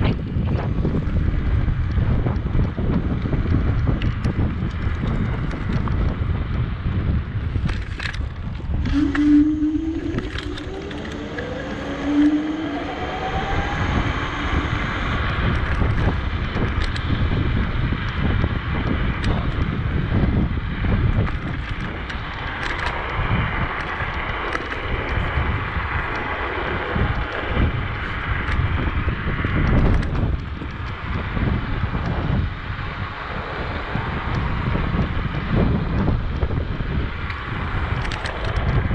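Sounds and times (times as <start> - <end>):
wind buffeting microphone: 0.0 - 38.9
faint rising hum: 8.8 - 16.6.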